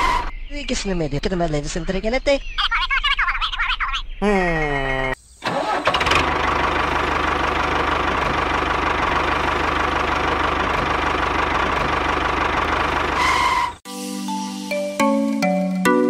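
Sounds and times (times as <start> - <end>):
tractor engine knocking rattle: 5.5 - 13.6
steady engine whine: 5.5 - 13.8.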